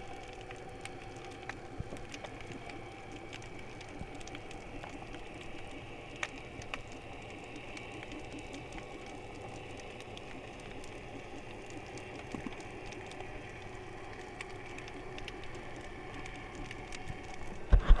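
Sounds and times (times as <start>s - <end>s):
sharp underwater clicks: 0.0s - 18.0s
underwater hiss and rumble: 0.0s - 18.0s.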